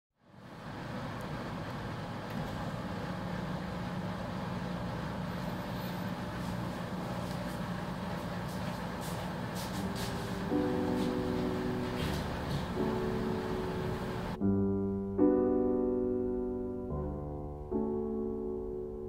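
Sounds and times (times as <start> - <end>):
faint hum: 0.2 - 14.6
low background rumble: 10.1 - 19.0.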